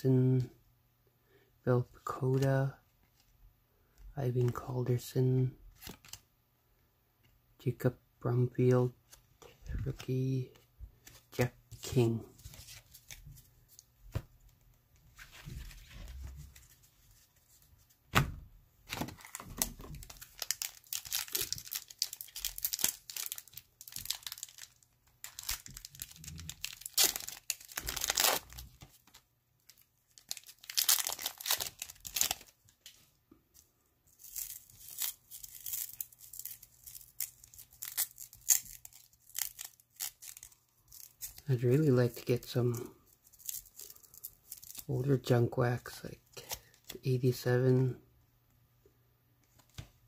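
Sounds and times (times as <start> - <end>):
wrapper tearing and crinkling: 19.1 - 32.8, 34.1 - 41.5, 43.2 - 44.9.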